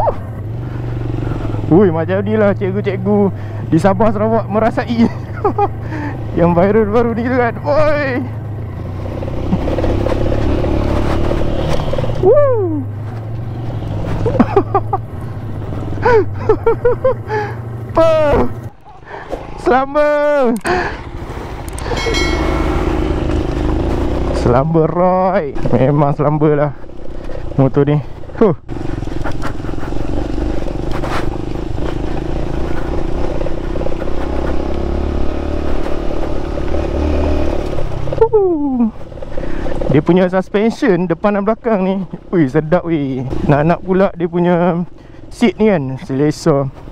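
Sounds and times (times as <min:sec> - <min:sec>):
motorcycle engine running: 0:00.0 - 0:46.9
person whooping: 0:12.2 - 0:12.9.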